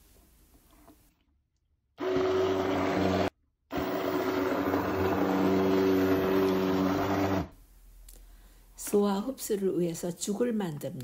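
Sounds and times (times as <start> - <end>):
hand blender running: 2.0 - 7.5.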